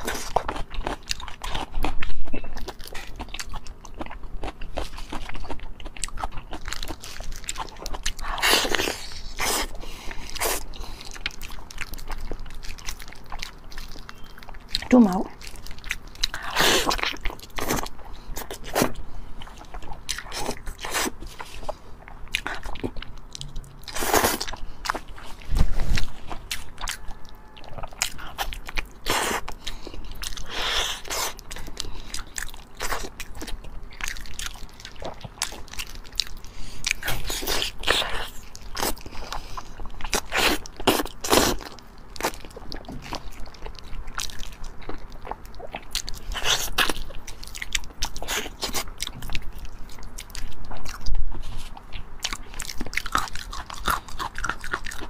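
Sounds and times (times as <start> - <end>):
wet chewing and biting: 0.0 - 55.0.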